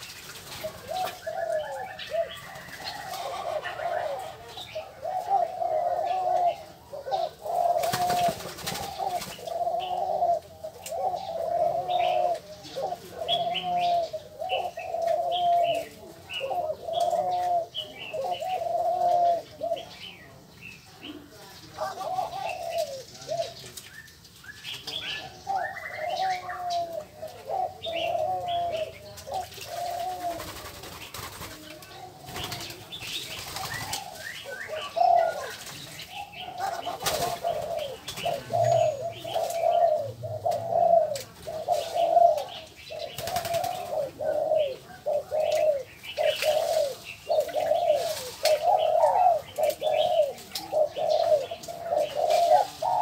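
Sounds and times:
waterhens croaking calls: 0.6s - 15.7s.

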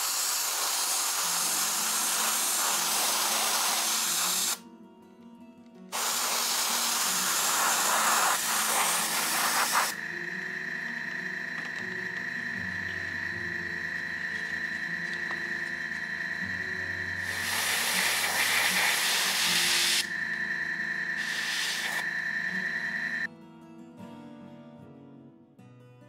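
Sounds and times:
airbrush spraying hiss: 0.0s - 4.6s, 5.9s - 10.4s, 16.3s - 23.3s
steady humming tone: 6.6s - 23.3s.

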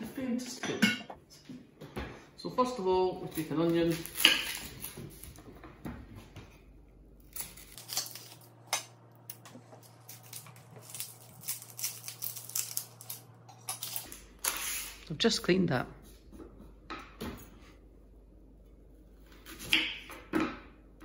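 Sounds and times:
onion skin crackling: 3.2s - 5.4s, 7.2s - 15.0s.

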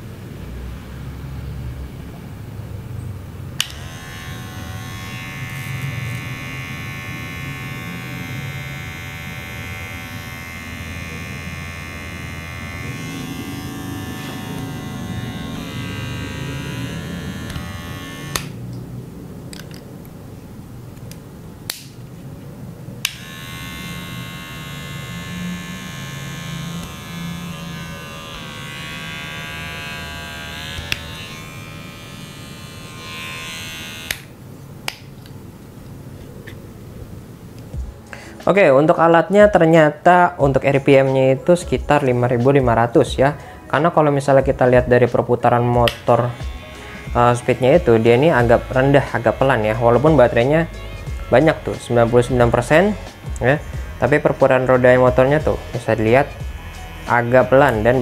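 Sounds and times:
hair clipper buzzing: 3.6s - 18.7s, 23.0s - 34.4s, 45.6s - 58.0s.

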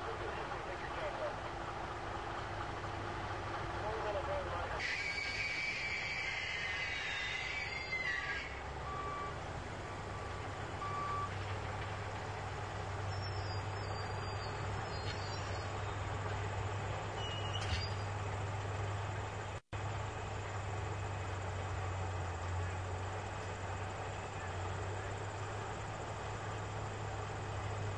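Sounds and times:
heavy equipment engine drone: 0.0s - 27.9s
backup alarm beeps: 8.8s - 9.4s, 10.1s - 11.4s.

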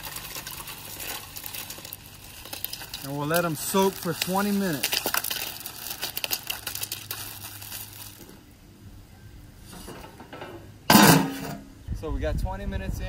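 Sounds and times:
ice crackling in hot water: 0.0s - 8.6s.

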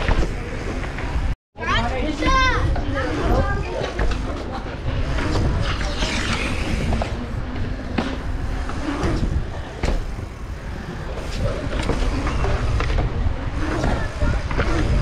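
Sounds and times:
wind buffeting microphone: 2.2s - 15.0s
bike rolling over concrete: 2.6s - 15.0s
bike knocks and rattles: 6.7s - 15.0s.

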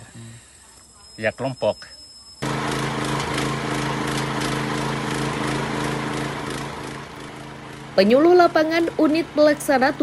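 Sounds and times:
pellet machine humming: 2.4s - 9.0s.

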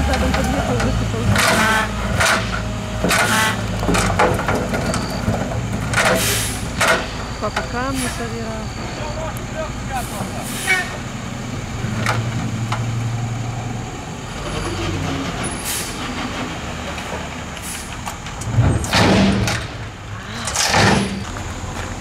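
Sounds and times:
dump truck engine running: 0.0s - 22.0s
loud bursts of hissing air: 6.1s - 6.7s.

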